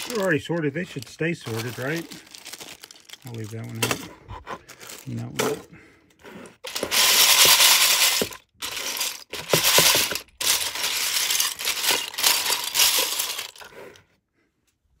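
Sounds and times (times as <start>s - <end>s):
plastic bricks clattering in colander: 0.0s - 4.0s, 6.6s - 13.7s.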